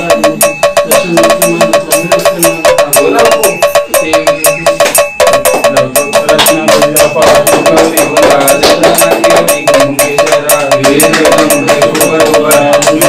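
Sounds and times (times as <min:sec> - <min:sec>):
people singing: 0:05.5 - 0:13.0.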